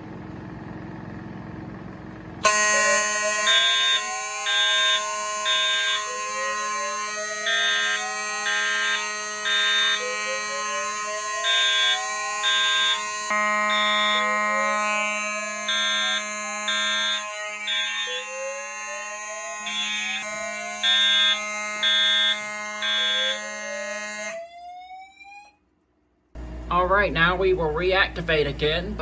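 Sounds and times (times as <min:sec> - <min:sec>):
pulsed horn blasts: 0:02.4 - 0:24.4
fire alarm whoop sweep: 0:02.4 - 0:25.6
steady high alarm tones: 0:02.4 - 0:25.6.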